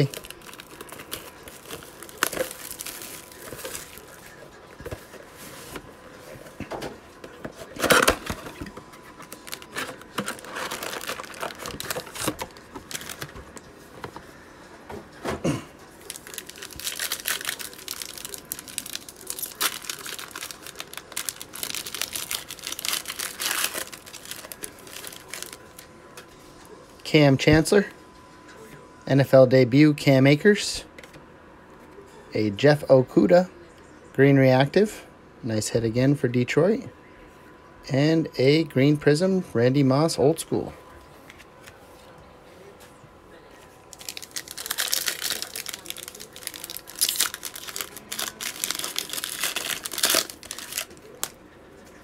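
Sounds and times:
foil packs crinkling: 0.0s - 5.8s, 7.6s - 13.6s, 16.0s - 25.8s, 43.9s - 51.4s
plastic wrap crinkling and tearing: 0.0s - 5.8s, 7.7s - 13.6s, 16.0s - 25.8s, 43.9s - 51.4s.

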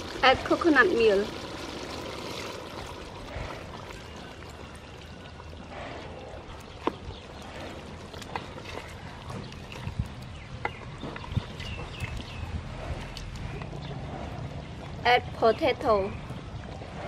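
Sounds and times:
liquid pouring into metal pot: 0.0s - 5.7s.

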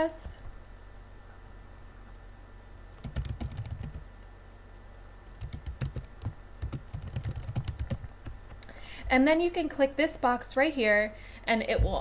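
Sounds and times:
computer keyboard typing: 3.0s - 4.0s, 5.3s - 8.4s.

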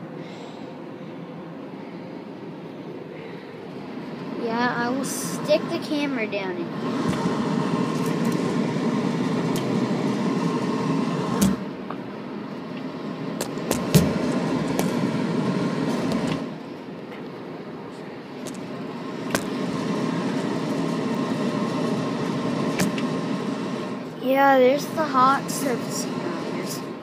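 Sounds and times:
furnace blower rushing hum: 3.2s - 27.0s.

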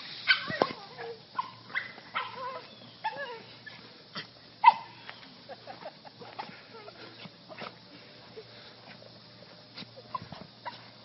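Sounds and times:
dog whining and yipping: 0.3s - 3.8s
dog yelp: 0.3s - 3.8s, 4.6s - 5.0s.

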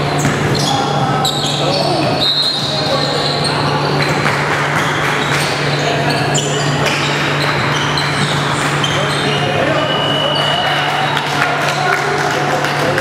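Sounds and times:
basketball bouncing: 0.0s - 2.9s, 4.0s - 5.6s
sneakers squeaking: 0.0s - 11.4s
players' voices: 0.0s - 13.0s.

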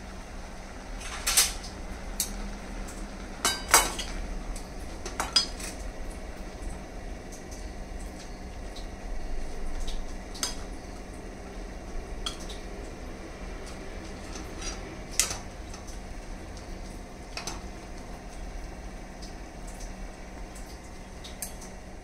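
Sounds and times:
low background hum: 0.0s - 22.0s
spoon clinking and scraping pan: 3.4s - 4.1s.

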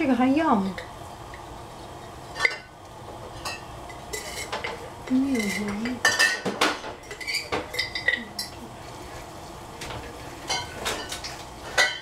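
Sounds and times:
cutlery and dishes clinking: 3.4s - 8.6s, 9.8s - 12.0s.

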